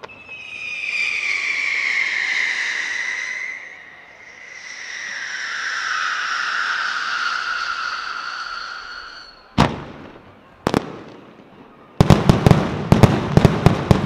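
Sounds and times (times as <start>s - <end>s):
fireworks whistling: 0.0s - 10.9s.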